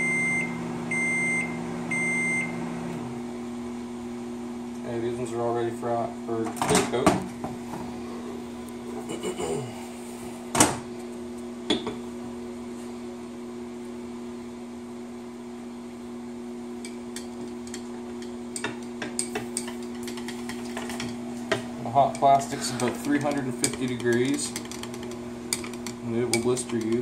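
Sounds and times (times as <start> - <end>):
electrical hum: 0.0 - 27.0.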